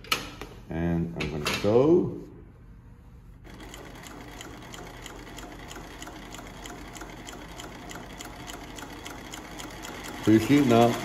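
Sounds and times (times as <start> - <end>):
sewing machine stitching: 3.5 - 11.0.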